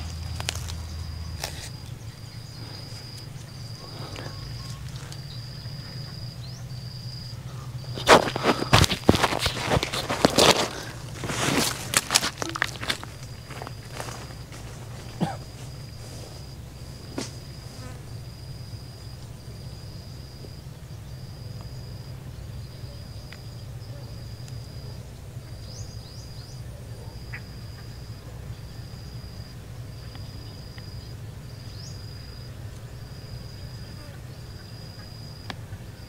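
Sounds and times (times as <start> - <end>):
insect buzzing trill: 0.0 - 20.4
low steady hum: 0.0 - 36.0.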